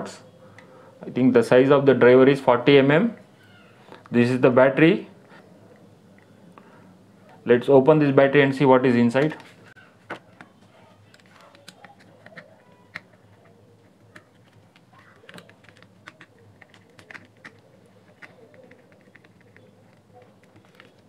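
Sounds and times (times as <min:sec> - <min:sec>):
screwdriver clicking on plastic: 0:11.1 - 0:21.0.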